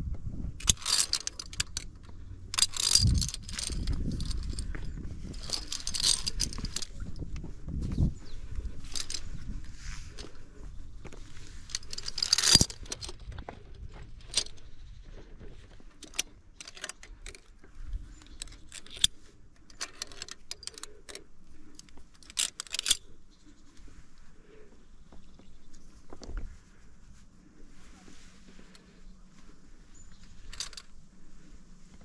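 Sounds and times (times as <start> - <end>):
metal jangles: 0.6 - 7.3, 8.7 - 9.4, 11.4 - 13.3, 16.0 - 17.5, 18.1 - 23.1, 29.9 - 30.9
carabiners clinking on steel cable: 0.6 - 23.8, 29.8 - 31.1.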